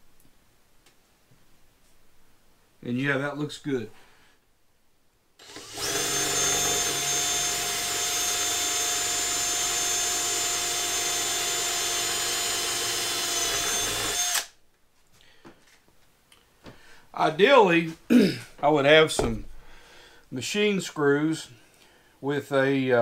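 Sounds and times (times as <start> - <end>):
power drill running: 5.4 - 14.5.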